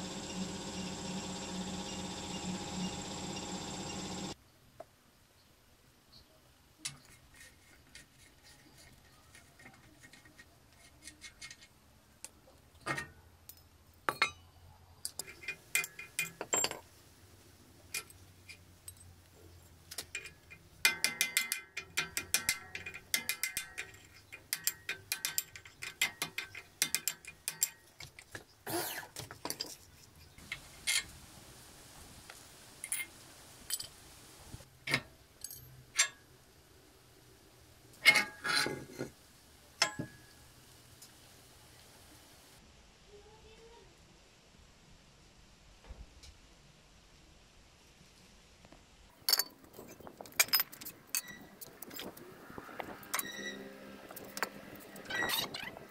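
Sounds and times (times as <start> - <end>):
metal tools clinking: 49.2 - 52.1.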